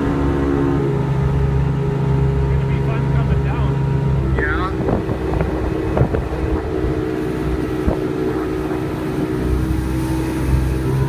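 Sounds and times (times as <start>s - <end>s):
motorboat engine running: 0.0s - 11.0s.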